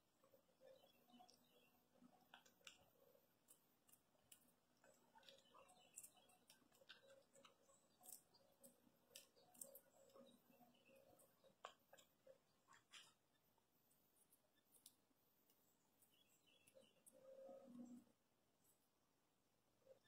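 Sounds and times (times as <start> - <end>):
squirrel cracking nuts: 0.6 - 13.3, 14.2 - 17.3.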